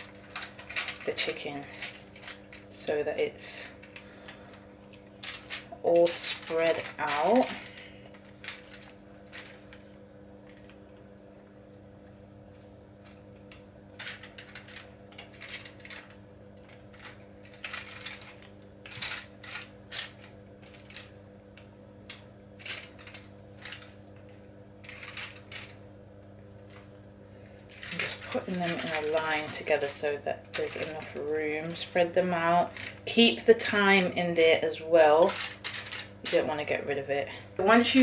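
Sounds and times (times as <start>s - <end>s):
foil crinkling: 0.0s - 3.0s, 3.9s - 9.9s, 14.0s - 21.1s, 22.6s - 25.8s, 27.4s - 34.5s, 35.2s - 36.4s
steady low hum: 0.0s - 38.0s.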